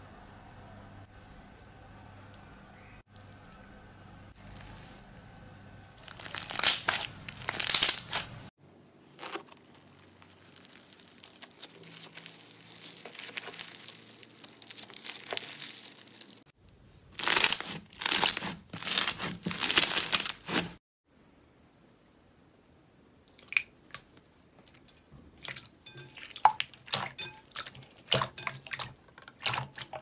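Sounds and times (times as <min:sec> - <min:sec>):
bead slime crackling: 0:06.0 - 0:08.4, 0:09.1 - 0:16.5, 0:17.2 - 0:20.8.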